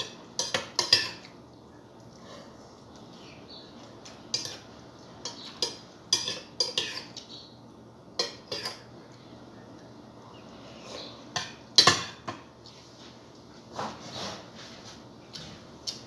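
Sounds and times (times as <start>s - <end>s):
metal spoon clinking against bowl: 5.2s - 7.2s, 8.2s - 8.9s.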